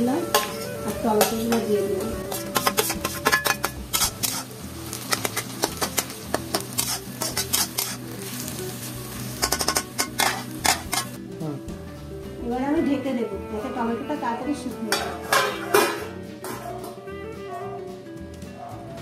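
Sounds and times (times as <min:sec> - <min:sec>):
oil sizzling: 0:00.0 - 0:11.2
metal spatula scraping pan: 0:00.3 - 0:08.4, 0:09.4 - 0:11.2, 0:14.9 - 0:16.8.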